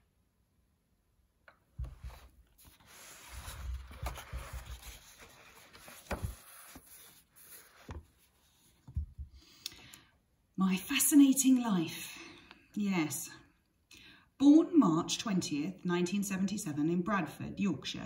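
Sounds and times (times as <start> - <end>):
book pages rustling: 1.8 - 9.3.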